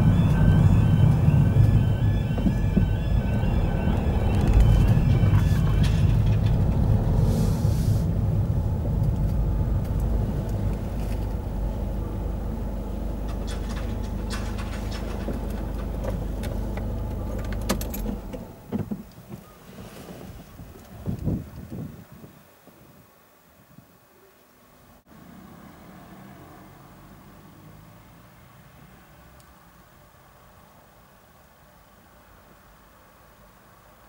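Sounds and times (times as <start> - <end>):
car engine and road rumble: 0.0 - 22.6.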